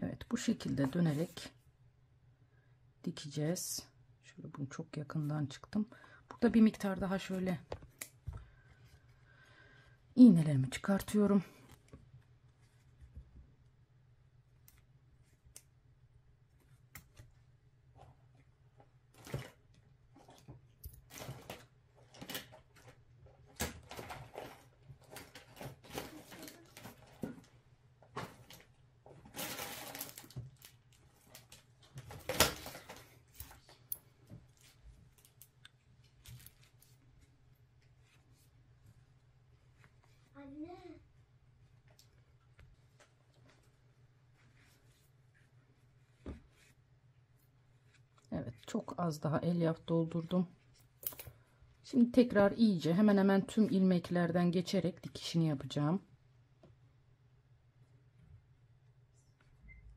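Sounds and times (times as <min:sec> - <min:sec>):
clicks and rustles of handling: 0:18.0 - 0:39.0.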